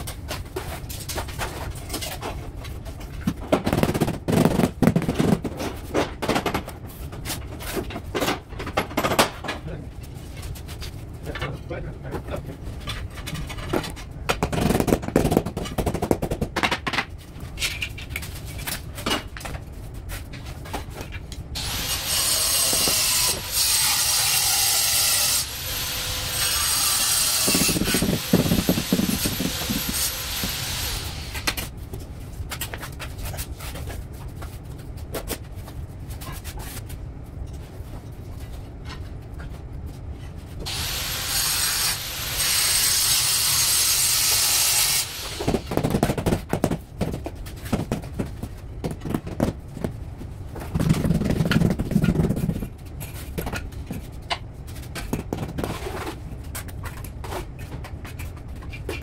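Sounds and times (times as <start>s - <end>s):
tools scraping on tile: 20.1s - 31.7s
high-pitched power tool: 40.7s - 45.5s.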